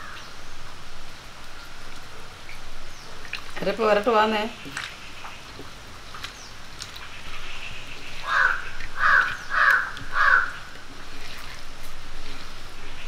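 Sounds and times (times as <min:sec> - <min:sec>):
crow cawing: 0:08.2 - 0:10.7.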